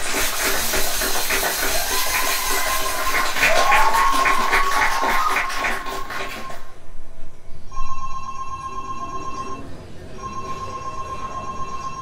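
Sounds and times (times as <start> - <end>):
telephone ringing: 7.7 - 12.0.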